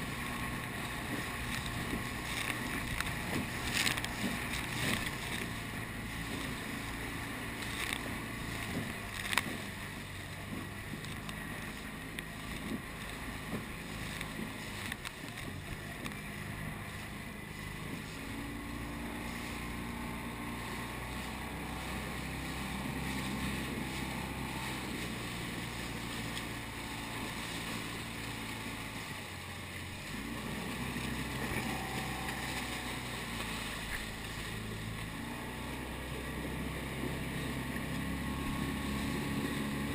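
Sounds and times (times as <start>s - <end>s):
low motor hum: 0.0s - 39.9s
water splashing against hull: 0.0s - 39.9s.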